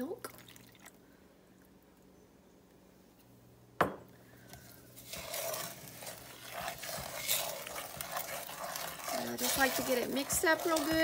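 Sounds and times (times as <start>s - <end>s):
wooden spoon scraping metal saucepan: 4.9s - 11.0s.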